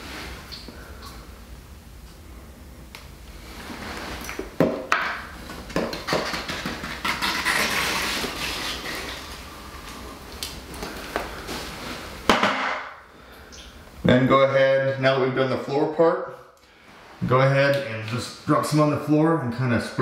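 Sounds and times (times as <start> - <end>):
metal tool scraping: 6.9 - 9.2.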